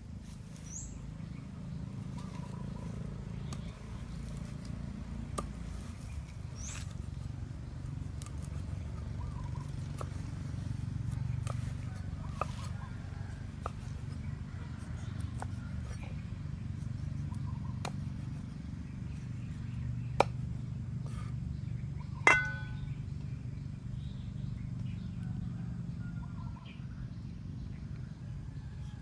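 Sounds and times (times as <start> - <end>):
steady low hum: 0.0 - 29.0
cleaver chopping on wooden board: 11.1 - 12.9, 19.7 - 20.4, 22.3 - 22.9
metal clink ringing: 22.3 - 22.9.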